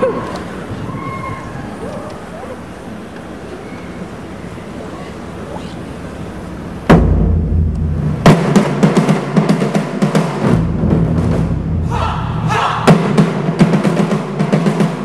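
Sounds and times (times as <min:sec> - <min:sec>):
drum ensemble playing: 0:06.8 - 0:15.0
heavy accented drum hits: 0:06.9 - 0:15.0
drummers shouting: 0:11.2 - 0:15.0.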